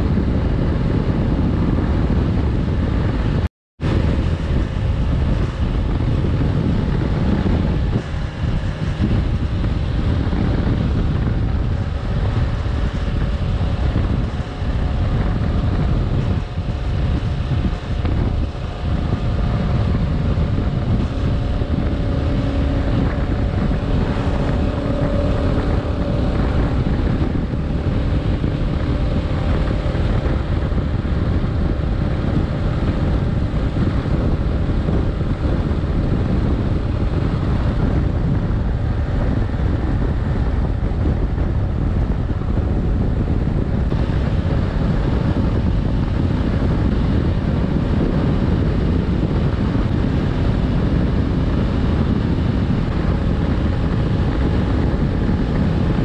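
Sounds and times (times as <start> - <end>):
motorcycle engine humming: 0.0 - 56.0
wind rushing over microphone: 0.0 - 56.0.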